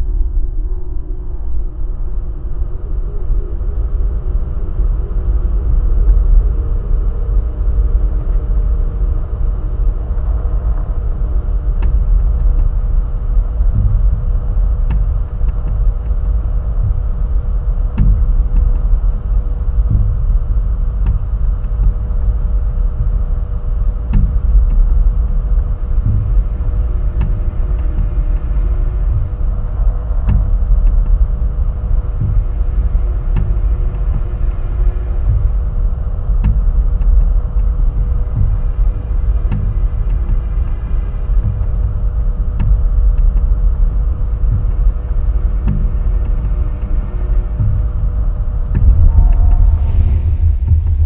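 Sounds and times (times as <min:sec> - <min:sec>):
loud low rumble: 0:00.0 - 0:51.0
faint steady tones: 0:20.9 - 0:51.0.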